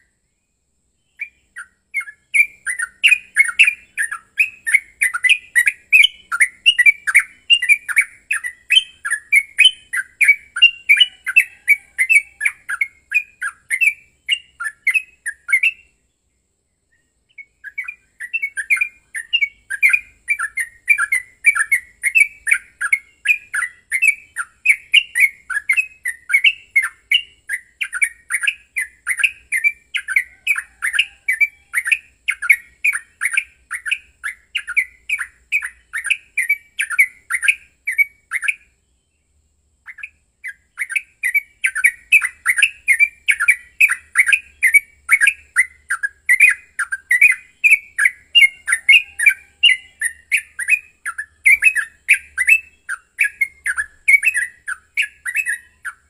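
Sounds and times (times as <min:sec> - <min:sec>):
bird singing chattering notes: 0:01.1 - 0:16.0, 0:17.2 - 0:38.8, 0:39.8 - 0:56.0.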